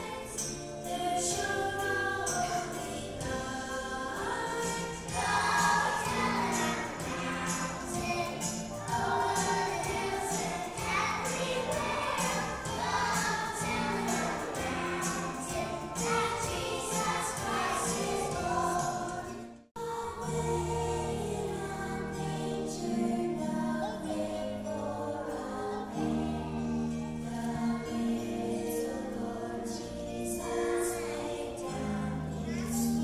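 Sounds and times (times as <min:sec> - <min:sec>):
children singing: 0:00.0 - 0:33.0
gentle music accompaniment: 0:00.0 - 0:33.0
jingle-bell beat music: 0:00.2 - 0:19.2.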